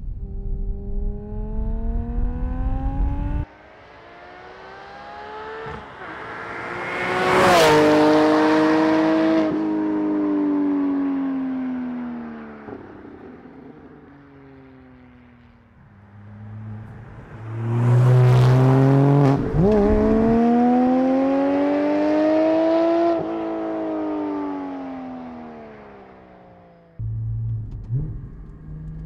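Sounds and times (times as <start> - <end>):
sports car engine revving: 16.0 - 24.4.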